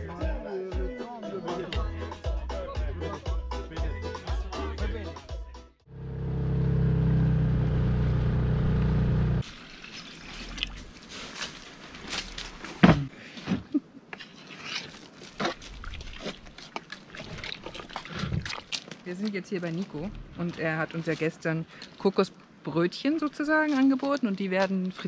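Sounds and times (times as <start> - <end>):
outboard motor running: 6.0 - 9.4.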